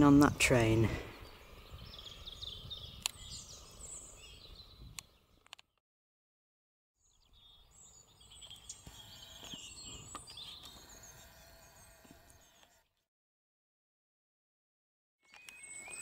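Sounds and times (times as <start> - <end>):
low wind rumble: 0.0 - 5.4
small birds chirping: 0.0 - 5.8, 7.0 - 13.0, 15.2 - 16.0.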